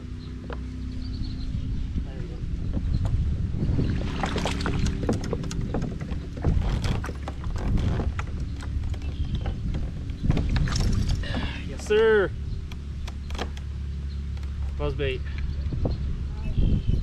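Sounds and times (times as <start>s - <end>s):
wind on microphone: 0.7s - 13.4s, 14.8s - 17.0s
fishing tackle clicks and knocks: 4.0s - 11.2s, 12.6s - 15.8s.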